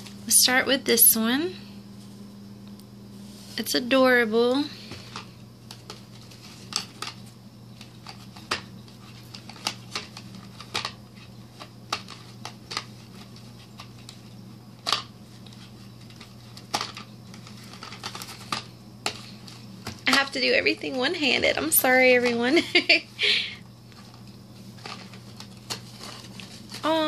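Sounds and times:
paper and card rustling: 4.8s - 22.6s, 23.9s - 27.0s.

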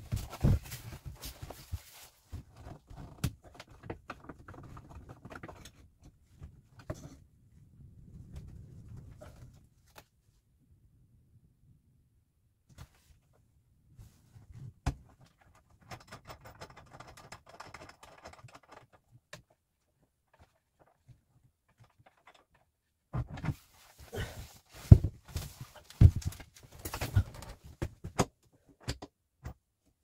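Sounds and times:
heavy thumps and knocks: 24.8s - 28.3s.

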